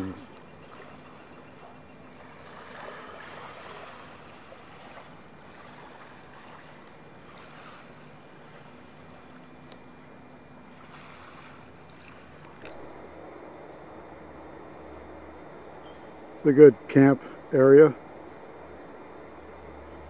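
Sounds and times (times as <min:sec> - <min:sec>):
river water washing on sand: 0:00.0 - 0:15.6
faint low hum: 0:00.0 - 0:20.0
wind: 0:00.0 - 0:20.0.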